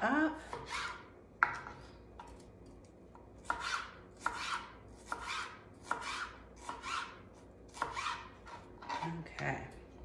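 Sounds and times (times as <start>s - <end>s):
knife slicing pepper on board: 0.5s - 2.3s, 3.4s - 9.1s.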